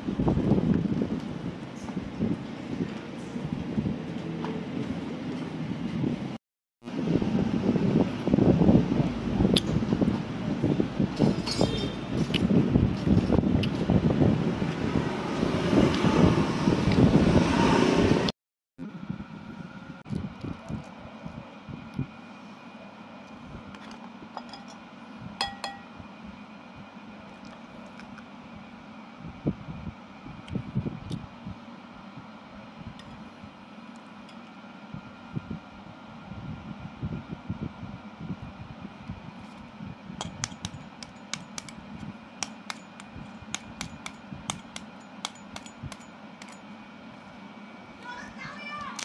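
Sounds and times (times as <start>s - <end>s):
steady low hum: 18.8s - 48.4s
metal spoon clinking on ceramic bowl: 25.4s - 25.9s
knife tapping eggshell: 40.2s - 41.8s, 42.4s - 46.0s.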